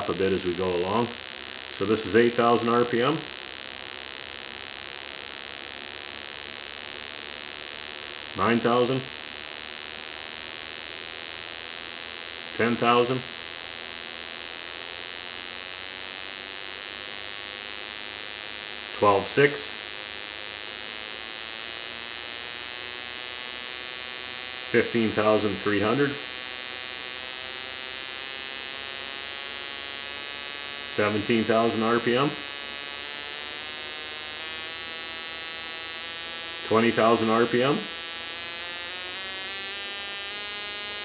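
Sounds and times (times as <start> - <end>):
spark plug electric buzz: 0.0 - 41.0.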